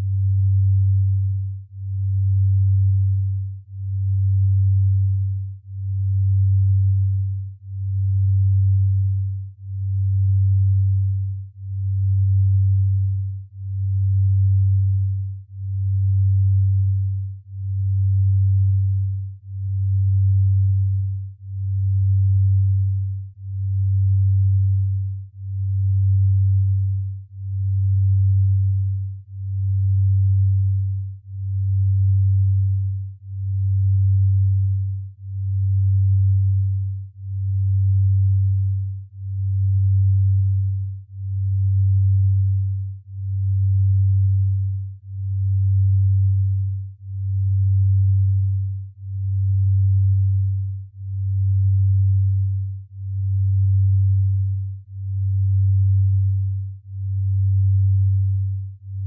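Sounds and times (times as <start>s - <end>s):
pulsing low hum tone: 0.0s - 59.0s.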